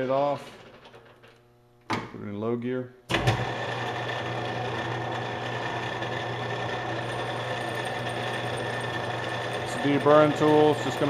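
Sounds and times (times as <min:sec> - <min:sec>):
metal lathe running: 0:03.3 - 0:11.0.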